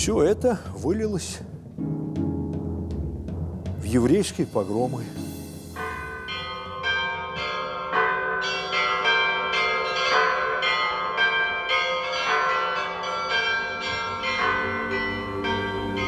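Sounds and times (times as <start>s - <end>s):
church bells ringing: 3.8s - 16.0s.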